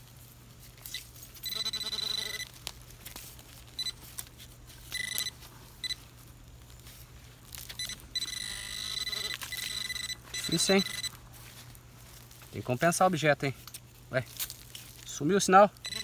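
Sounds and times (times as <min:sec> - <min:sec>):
pinpointer high electronic tone: 0:00.9 - 0:02.6, 0:03.8 - 0:04.1, 0:04.8 - 0:06.1, 0:07.6 - 0:11.2.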